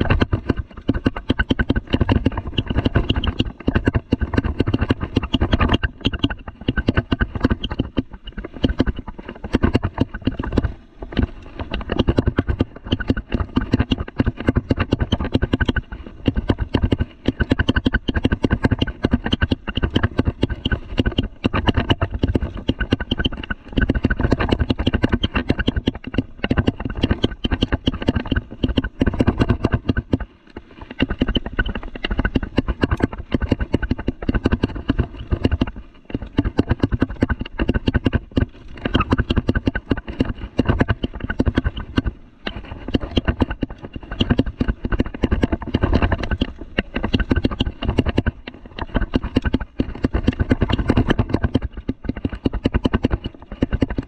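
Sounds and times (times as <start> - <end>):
mountain bike rattling on dirt trail: 0.0 - 54.0.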